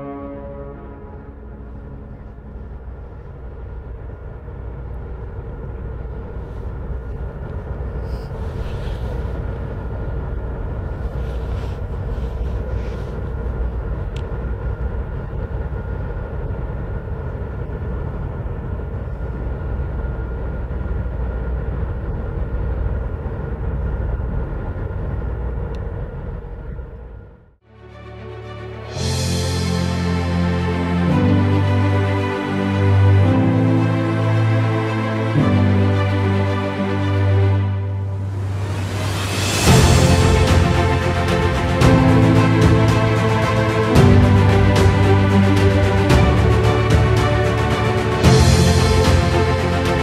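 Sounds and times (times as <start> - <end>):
diesel boat engine rumbling: 0.0 - 27.6.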